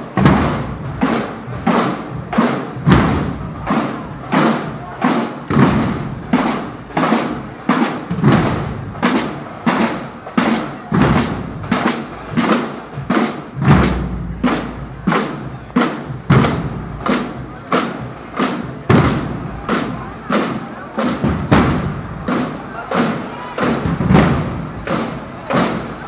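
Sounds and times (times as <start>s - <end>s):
marching drum line cadence: 0.0s - 26.0s.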